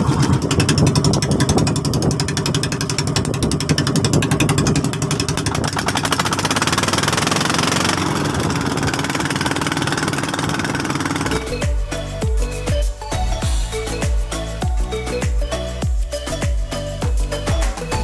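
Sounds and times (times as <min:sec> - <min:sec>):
boat engine knocking: 0:00.0 - 0:18.0.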